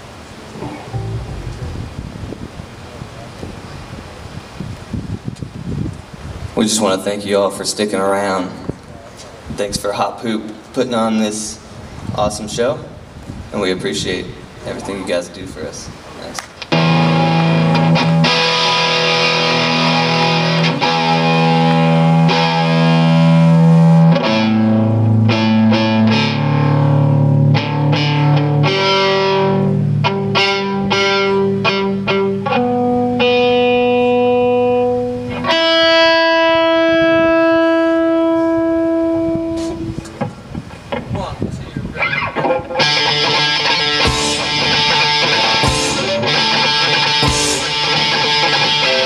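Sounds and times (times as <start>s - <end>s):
distorted electric guitar: 0.6s - 3.1s, 16.7s - 40.1s, 42.0s - 49.0s.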